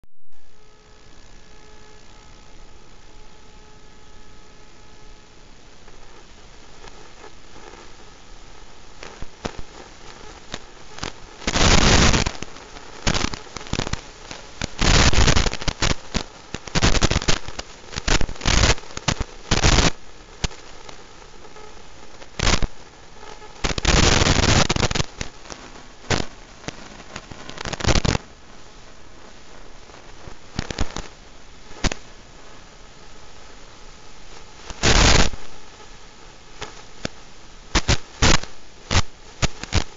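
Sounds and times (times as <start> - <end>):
static hiss with crackles: 0.2 - 39.9
sharp clicks and pops: 37.8 - 39.9.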